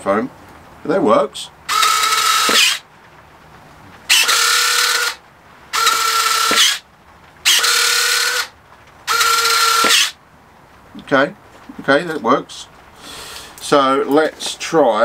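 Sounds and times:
landing gear retract whine: 1.7s - 2.8s, 4.1s - 5.2s, 5.8s - 6.8s, 7.4s - 8.5s, 9.1s - 10.2s.

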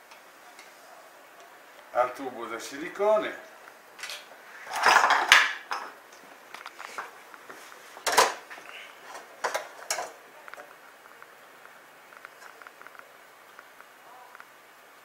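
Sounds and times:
metal pans knocking and clinking: 4.0s - 6.0s, 8.0s - 8.4s, 9.1s - 10.2s.

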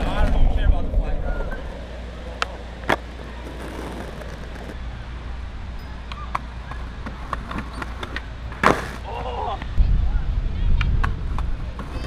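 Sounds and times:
skateboard rolling hiss: 1.7s - 4.8s
skateboard clicking on stone: 2.3s - 4.8s
skateboard landing clack: 6.3s - 9.0s.

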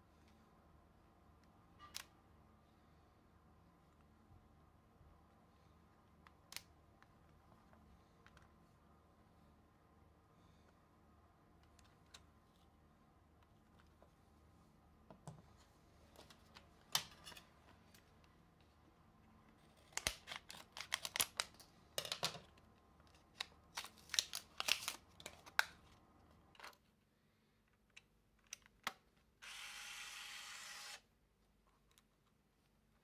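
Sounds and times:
plastic blister pack crackling: 19.8s - 21.6s, 23.3s - 25.8s
camera motor whirring: 29.4s - 31.0s.

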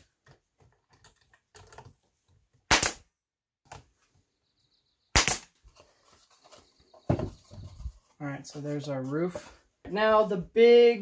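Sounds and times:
nail gun firing: 2.7s - 3.0s, 5.1s - 5.5s.

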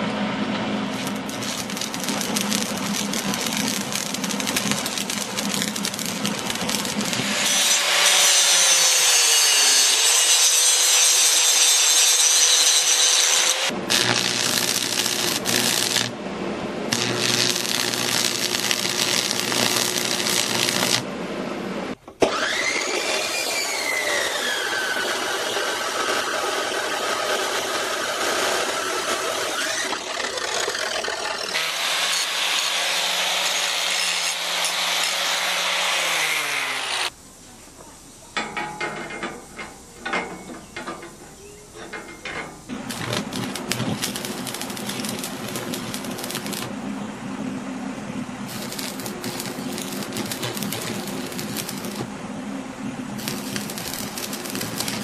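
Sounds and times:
arc welding crackling and hissing: 0.0s - 16.2s, 16.8s - 21.1s, 22.6s - 38.4s, 42.7s - 46.8s, 48.4s - 52.1s, 53.1s - 55.0s
chop saw cutting steel: 0.9s - 16.1s, 16.9s - 21.0s, 22.2s - 37.1s, 42.9s - 46.7s, 48.5s - 52.1s, 53.2s - 55.0s.

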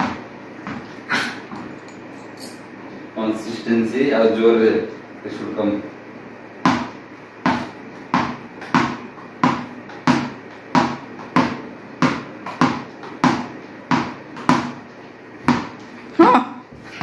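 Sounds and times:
ball bouncing on hard floor: 0.0s - 0.9s, 6.6s - 14.8s, 15.4s - 15.9s.

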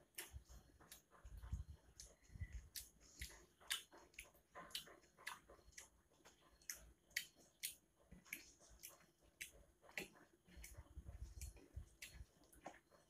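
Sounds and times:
person chewing: 0.0s - 13.0s
wet mouth clicks and smacks: 2.7s - 5.9s, 6.6s - 12.8s.

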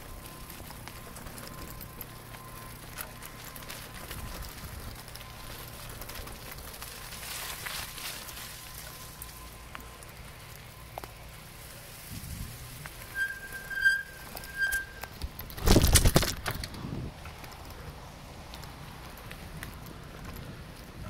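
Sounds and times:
bicycle tyres crackling over leaves: 0.0s - 21.0s
short high-pitched squeal: 13.0s - 15.1s.

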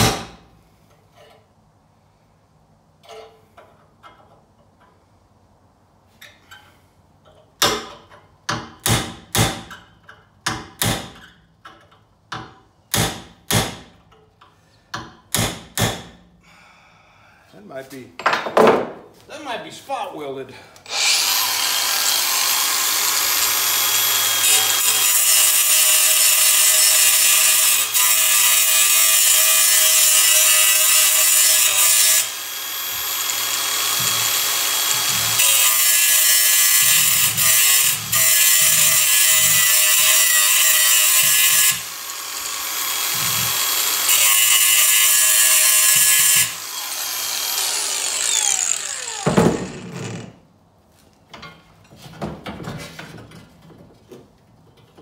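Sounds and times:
angle grinder grinding steel: 20.8s - 50.3s
grinder motor winding down: 20.9s - 24.8s, 46.6s - 50.2s.

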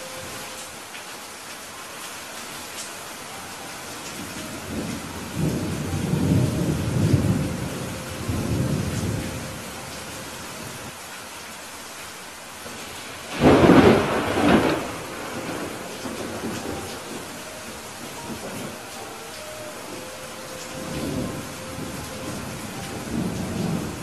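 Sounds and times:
heavy rain: 0.0s - 24.0s
thunder rumbling and cracking: 13.3s - 18.8s.

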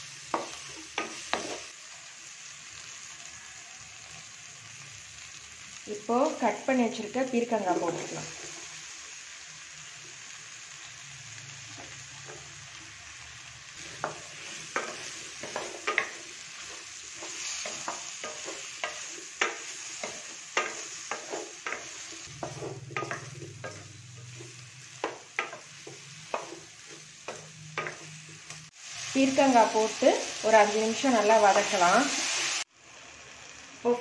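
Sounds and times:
soft sizzle: 0.0s - 34.0s
spatula knocking and scraping pan: 0.3s - 1.7s, 13.8s - 28.4s.

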